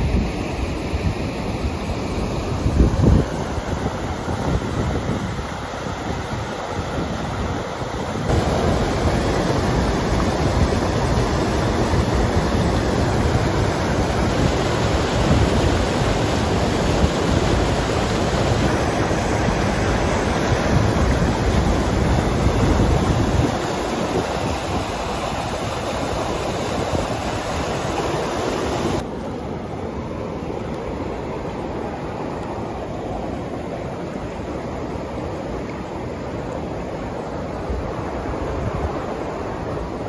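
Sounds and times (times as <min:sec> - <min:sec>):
wind buffeting microphone: 0:00.0 - 0:29.0
water rushing over rocks: 0:00.0 - 0:40.0.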